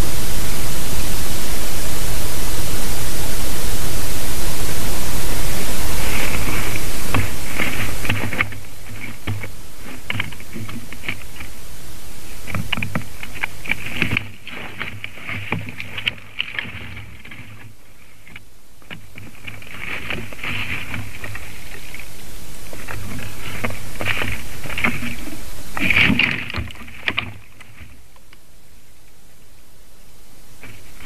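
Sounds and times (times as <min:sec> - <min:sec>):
low hum: 0:00.0 - 0:31.0
rustling of dry grass and sticks: 0:04.0 - 0:31.0
light clicks and cracks: 0:06.1 - 0:11.5.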